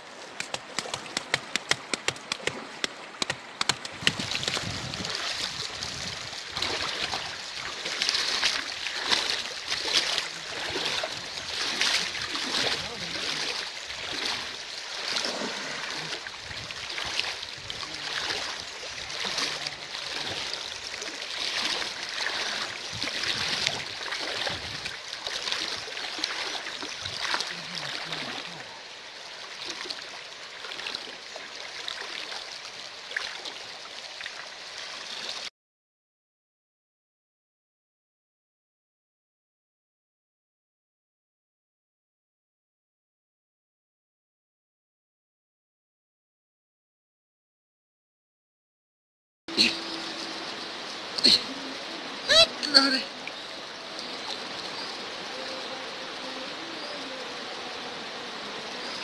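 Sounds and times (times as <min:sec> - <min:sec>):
legs wading through water: 0:00.0 - 0:28.6, 0:49.5 - 0:59.0
rocky river running: 0:00.0 - 0:35.4, 0:49.5 - 0:59.0.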